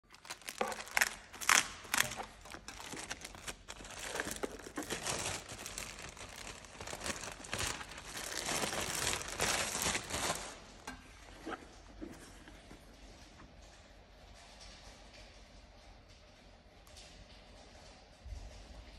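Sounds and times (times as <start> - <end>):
plastic bag crinkling: 0.0 - 10.9.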